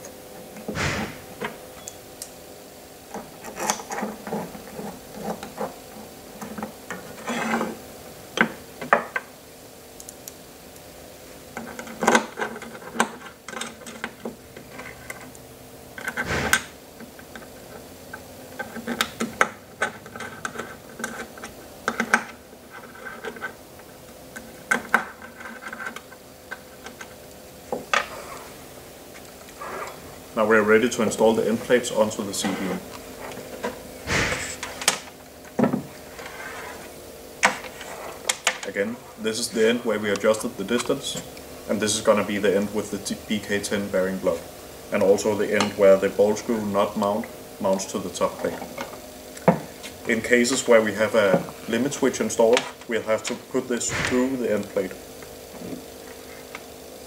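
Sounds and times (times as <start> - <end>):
faint steady hum: 0.0 - 57.0
small parts clicking on wooden bench: 16.0 - 23.6.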